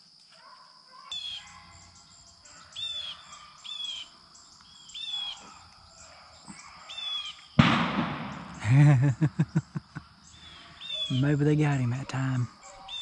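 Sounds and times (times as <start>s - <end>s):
bird harsh calls: 1.0s - 7.6s, 10.0s - 13.0s.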